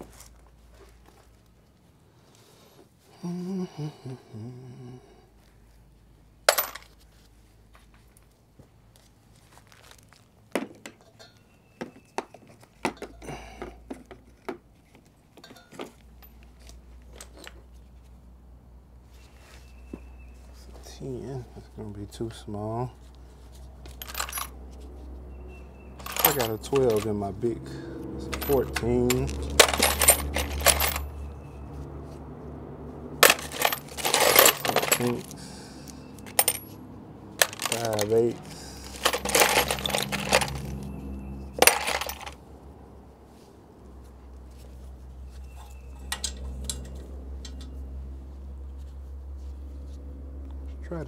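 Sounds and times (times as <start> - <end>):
metal tools clinking together: 10.9 - 13.5, 15.4 - 16.5, 23.9 - 24.6, 25.8 - 27.3, 28.2 - 31.4, 33.2 - 36.8, 37.4 - 42.4, 45.3 - 47.8.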